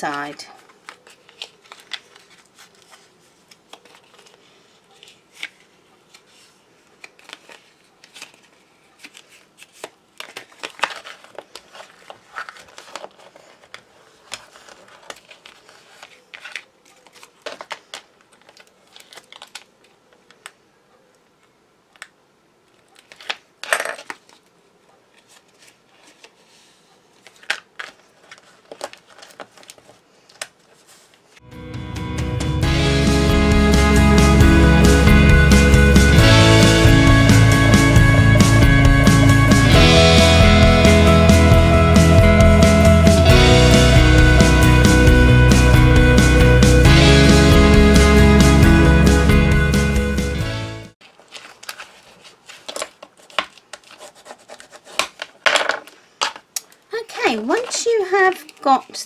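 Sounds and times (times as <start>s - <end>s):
paper crinkling and rustling: 0.0s - 20.6s, 22.0s - 31.4s, 51.0s - 58.8s.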